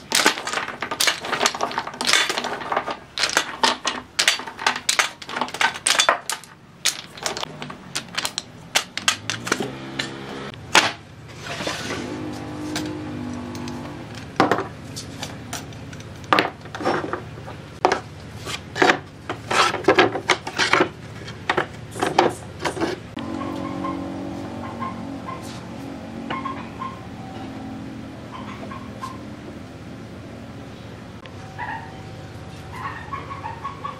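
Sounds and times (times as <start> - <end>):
wood and metal parts clattering: 0.0 - 23.4.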